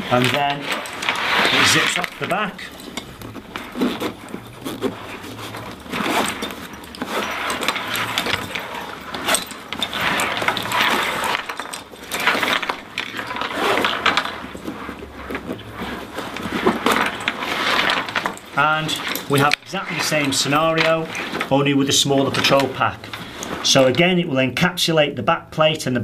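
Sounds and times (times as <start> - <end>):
buckles clinking: 0.0 - 24.2
fabric rustling and scraping: 0.0 - 24.4
zip being run: 12.2 - 18.1.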